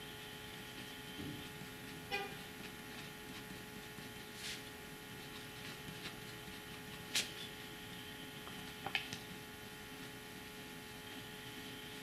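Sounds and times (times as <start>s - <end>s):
steady low hum: 0.0s - 12.0s
pen nib scratching on paper: 0.7s - 7.6s.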